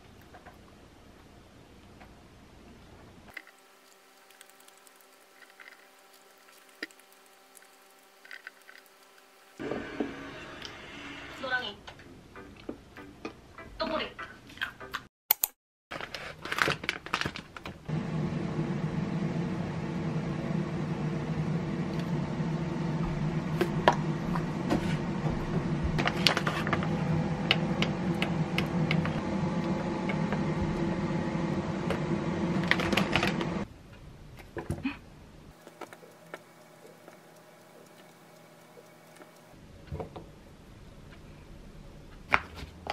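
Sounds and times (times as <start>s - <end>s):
kitchen appliance humming: 3.4s - 11.4s, 17.9s - 33.7s, 35.6s - 39.6s
utensils clicking and tapping: 35.6s - 39.5s.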